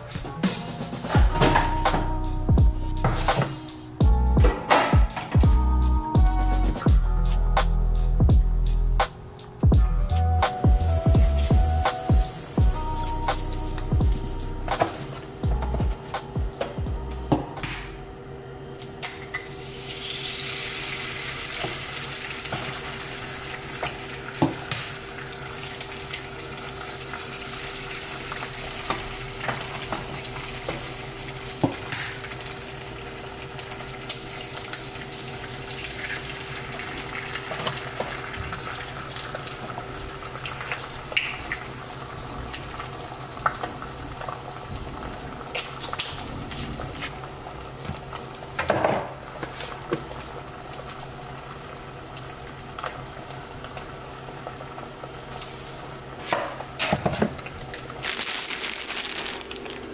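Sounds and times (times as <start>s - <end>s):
steady hum: 0.7s - 19.9s
eggs sizzling in a pan: 10.5s - 15.2s, 19.3s - 59.9s.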